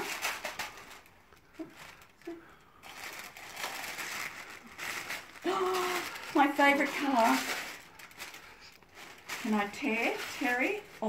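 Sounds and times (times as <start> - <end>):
tissue paper rustling: 0.0 - 11.0
person speaking: 5.4 - 7.7, 9.3 - 11.0.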